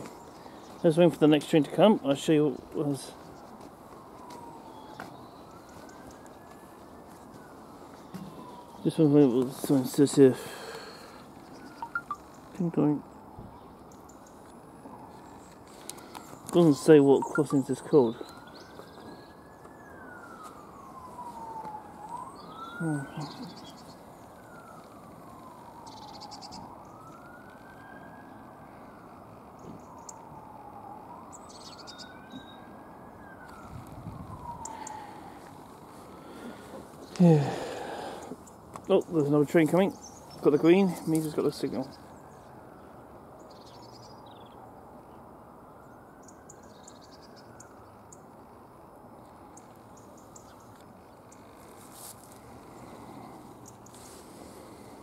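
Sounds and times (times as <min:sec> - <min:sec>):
small birds chirping: 0:00.0 - 0:27.4, 0:28.3 - 0:30.5, 0:31.3 - 0:45.2, 0:45.8 - 0:48.7, 0:49.4 - 0:55.0
outdoor ambience hiss: 0:00.0 - 0:55.0
siren wailing: 0:00.1 - 0:13.8, 0:14.5 - 0:43.4, 0:44.2 - 0:51.7.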